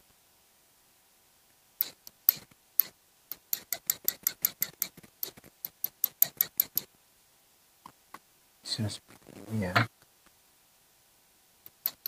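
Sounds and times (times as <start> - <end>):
paintbrush tapping against pencil: 1.8 - 6.9.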